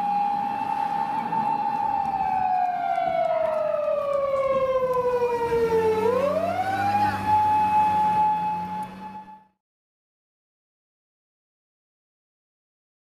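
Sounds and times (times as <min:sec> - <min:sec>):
police siren wailing: 0:00.0 - 0:09.6.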